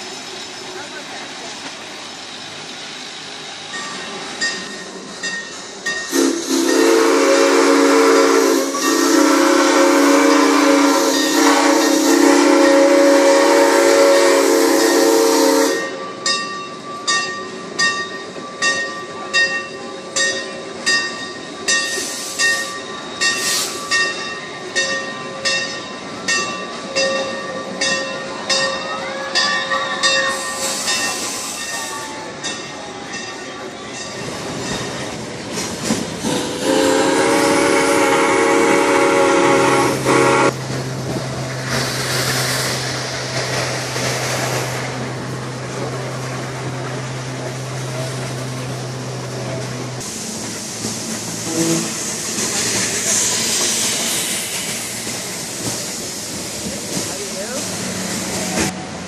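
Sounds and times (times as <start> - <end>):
steam locomotive whistle: 6.1 - 16.2, 29.2 - 32.3, 36.2 - 40.6, 51.4 - 54.3.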